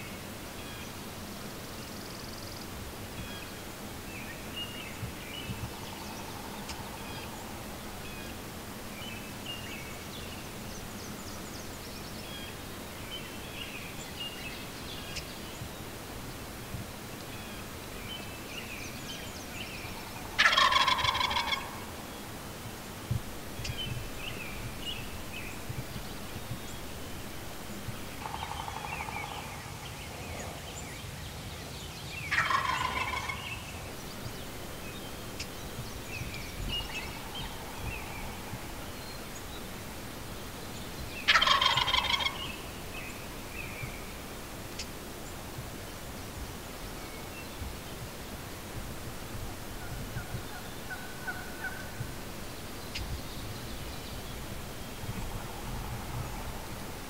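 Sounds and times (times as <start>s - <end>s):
turkey gobbling: 20.3s - 21.9s, 28.2s - 29.1s, 32.3s - 33.5s, 41.2s - 42.6s, 49.8s - 52.0s.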